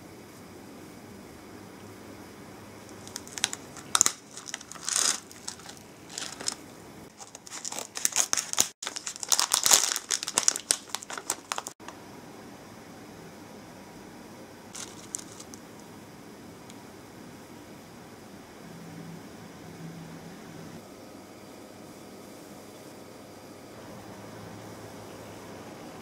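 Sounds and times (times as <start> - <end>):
plastic bag crinkling: 2.9 - 11.8, 14.8 - 15.6.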